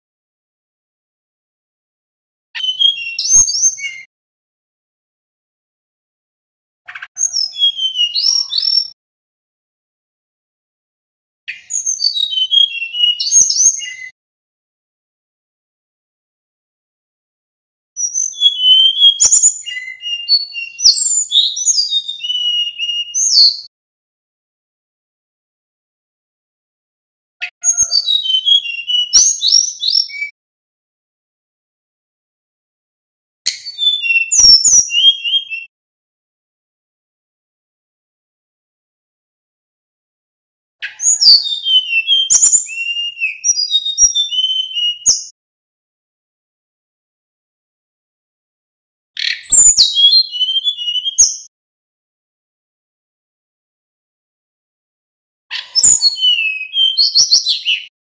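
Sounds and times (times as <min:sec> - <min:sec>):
bird singing whistled song: 0:02.6 - 0:04.1, 0:06.9 - 0:09.0, 0:11.5 - 0:14.2, 0:18.0 - 0:23.7, 0:27.5 - 0:30.4, 0:33.5 - 0:35.7, 0:40.8 - 0:45.3, 0:49.2 - 0:51.5, 0:55.5 - 0:57.9.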